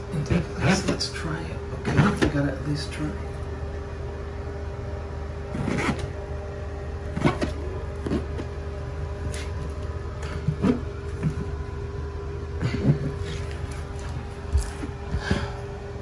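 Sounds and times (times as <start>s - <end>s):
steady low hum: 0.0s - 16.0s
fingers rubbing wallpaper: 5.5s - 6.1s.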